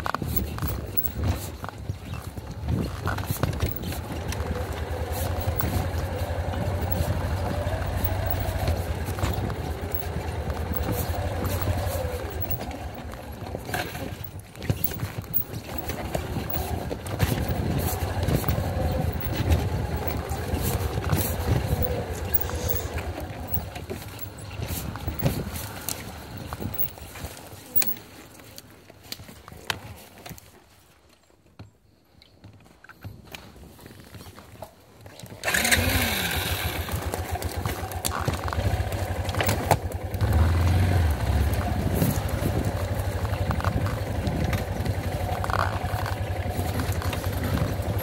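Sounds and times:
bike knocks and rattles: 0.0 - 28.2, 36.4 - 48.0
motorcycle engine revving: 2.8 - 27.9, 35.4 - 48.0.

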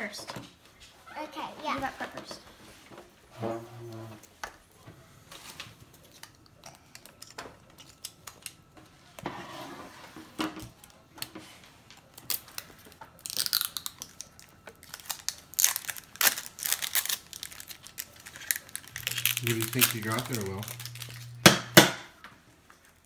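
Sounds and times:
packaging crinkling and tearing: 5.4 - 8.7, 12.0 - 21.4.

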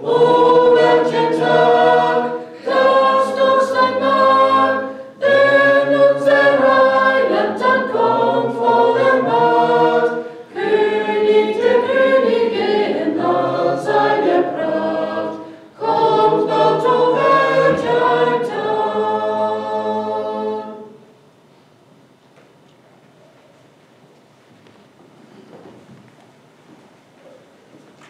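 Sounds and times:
group singing a hymn unaccompanied: 0.0 - 21.2.

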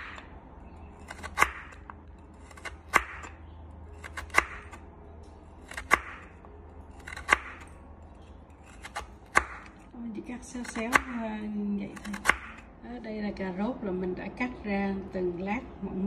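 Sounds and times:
knife chopping carrot on board: 2.5 - 3.4, 4.0 - 4.8, 5.7 - 6.3, 7.0 - 7.7, 8.7 - 9.7, 10.6 - 11.2, 12.0 - 12.6.

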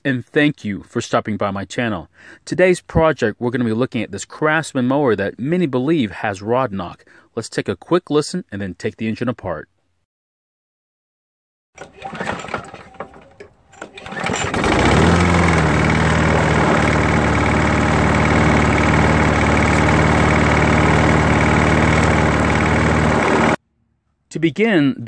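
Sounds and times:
engine clanking: 11.8 - 23.6
lawn mower engine running: 11.8 - 23.6.

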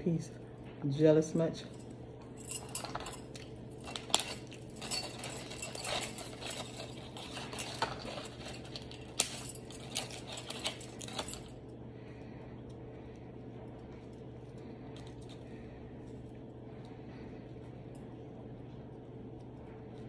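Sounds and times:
aluminium foil crinkling: 2.7 - 11.5.

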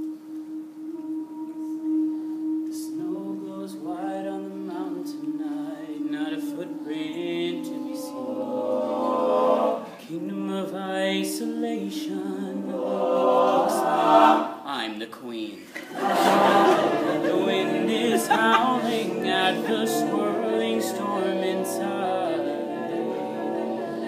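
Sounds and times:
male a cappella group singing: 0.8 - 14.8, 15.8 - 24.0.

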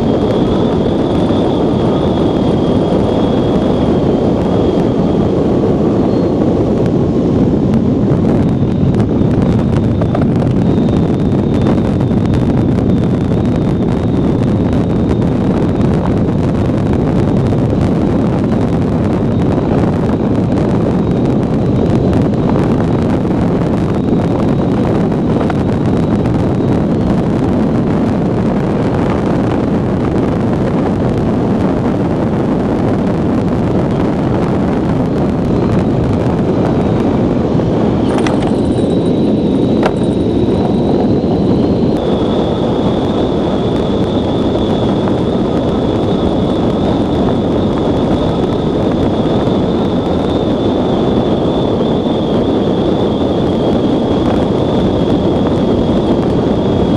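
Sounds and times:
wind rushing over microphone: 0.0 - 56.9
thin high tone: 38.0 - 42.0.

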